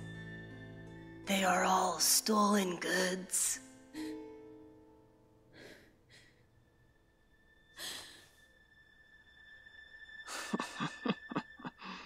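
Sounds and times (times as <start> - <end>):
person breathing: 5.5 - 6.6, 7.8 - 8.5, 11.8 - 12.0
breathy sigh: 7.8 - 8.4.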